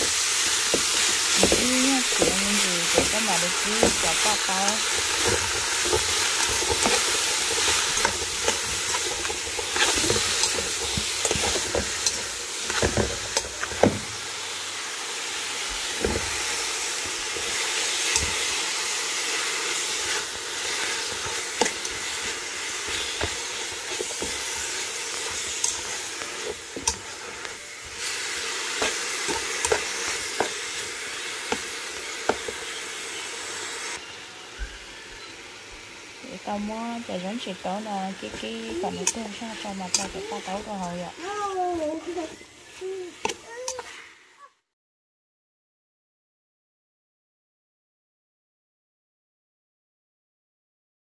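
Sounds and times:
vegetables sizzling in a pot: 0.0s - 44.5s
metal spoon scraping a pot: 0.7s - 13.7s, 19.8s - 30.5s.

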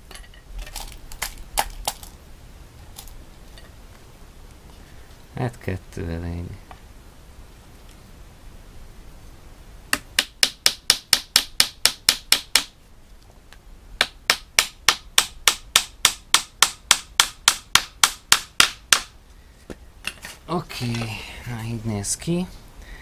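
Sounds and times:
hammer tapping nails into wood: 9.9s - 12.7s, 14.0s - 19.1s.

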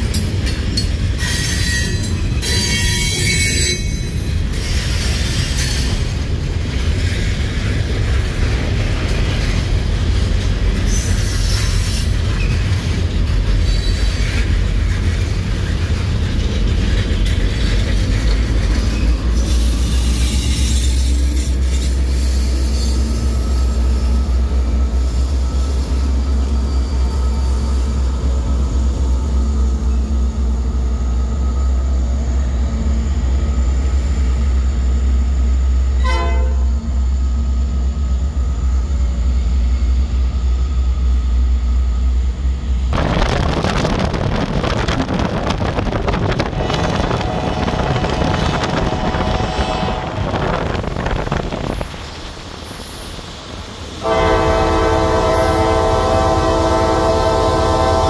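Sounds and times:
train wheel squeal: 0.0s - 6.2s, 10.5s - 42.3s, 46.6s - 58.0s
train cars rumbling: 0.0s - 58.0s
locomotive engine hum: 4.2s - 58.0s
train horn toot: 36.0s - 36.9s, 46.8s - 50.6s, 54.0s - 58.0s.

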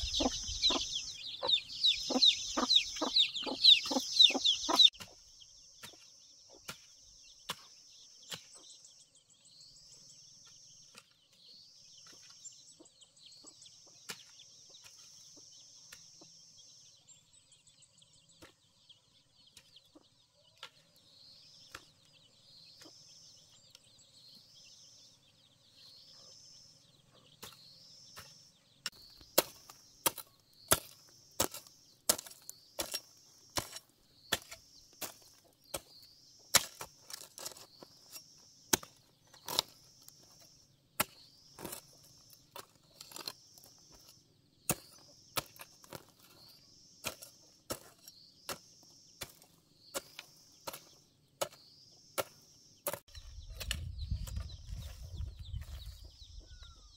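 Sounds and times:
hoe chopping into dry soil: 5.8s - 8.6s, 27.4s - 55.0s.

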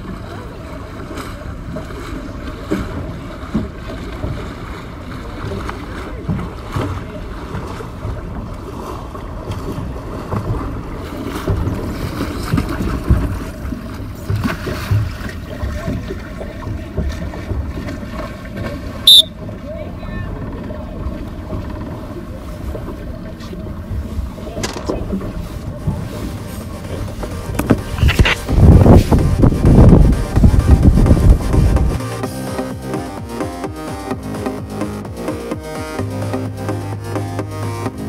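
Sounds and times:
low thumps: 27.0s - 38.0s
wind rushing over microphone: 27.4s - 32.0s.

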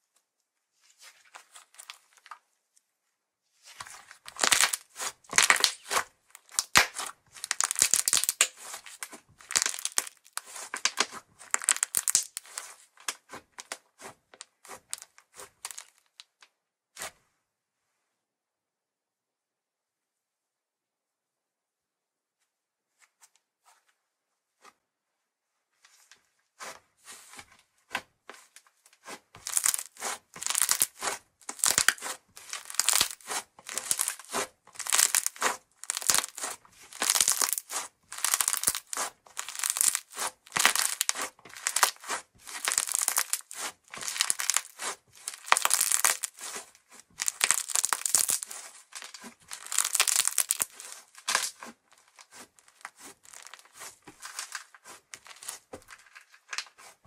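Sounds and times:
slime crackling when stretched: 4.3s - 8.7s, 9.5s - 12.6s, 14.9s - 15.9s, 29.4s - 46.5s, 47.2s - 51.6s.

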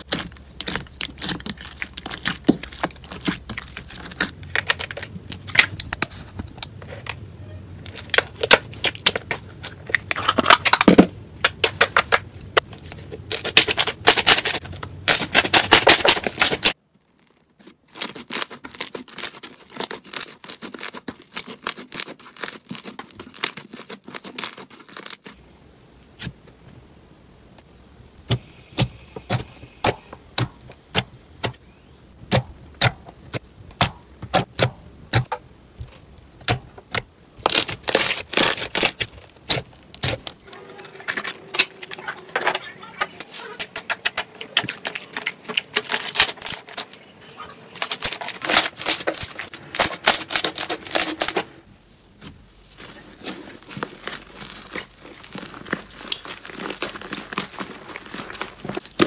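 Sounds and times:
slime crackling and popping: 0.0s - 6.8s, 36.4s - 43.0s, 43.6s - 47.1s, 47.8s - 51.3s, 52.8s - 59.0s.

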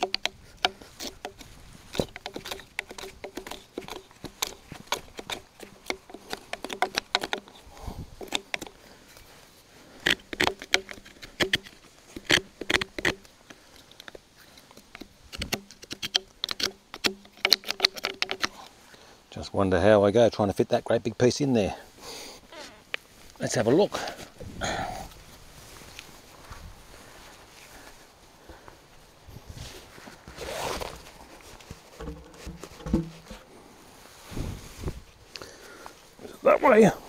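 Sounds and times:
wood chisel scraping chips: 0.0s - 7.6s, 8.2s - 8.8s, 9.9s - 18.7s.

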